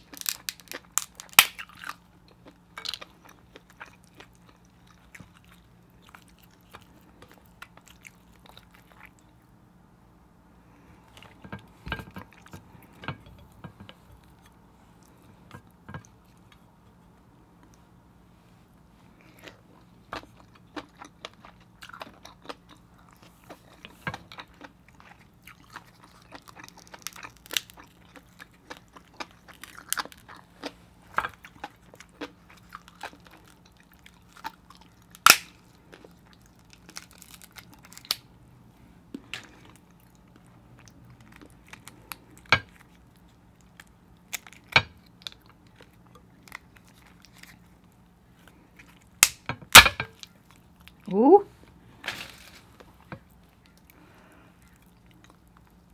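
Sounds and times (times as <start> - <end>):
crab shell cracking: 0.0 - 2.0, 32.2 - 35.7, 36.4 - 38.3, 49.0 - 50.4
chewing and mouth sounds: 0.0 - 9.6, 19.0 - 38.2, 39.0 - 49.2, 52.7 - 55.9.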